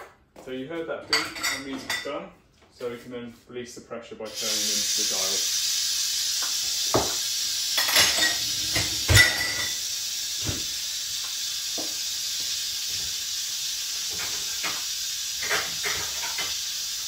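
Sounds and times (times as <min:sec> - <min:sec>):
pressure cooker steam hissing: 0:04.3 - 0:17.0.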